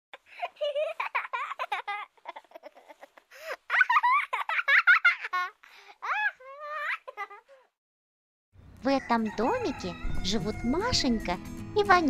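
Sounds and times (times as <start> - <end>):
children laughing and giggling: 0.2 - 7.8.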